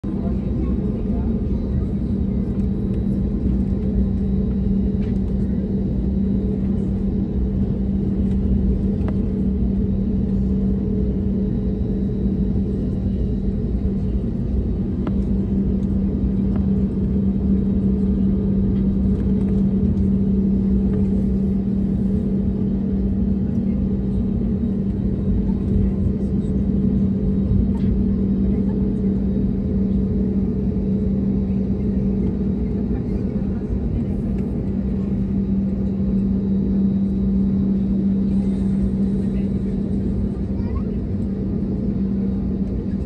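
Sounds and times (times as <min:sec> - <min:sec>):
jet engines droning: 0:00.0 - 0:43.0.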